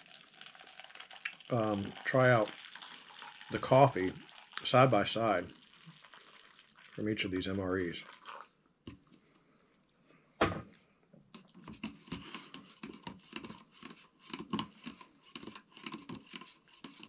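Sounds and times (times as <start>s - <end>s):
spoon stirring in plastic cup: 11.3s - 17.0s.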